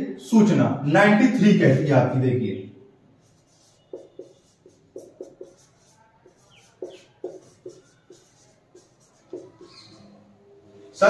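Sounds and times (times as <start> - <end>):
marker pen writing on whiteboard: 3.2 - 10.3
marker tip squeaks: 3.3 - 10.2.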